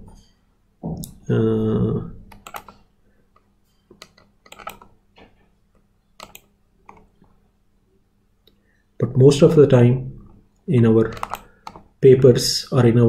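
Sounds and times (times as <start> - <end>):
person speaking: 0.8 - 2.7, 9.0 - 13.0
mouse and keyboard clicks: 2.3 - 2.8, 3.9 - 4.9, 6.2 - 7.1, 11.0 - 11.9.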